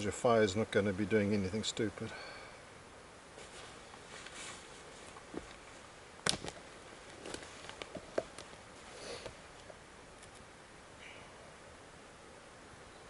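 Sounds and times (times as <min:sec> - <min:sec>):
dry twigs snapping: 0:06.2 - 0:08.6.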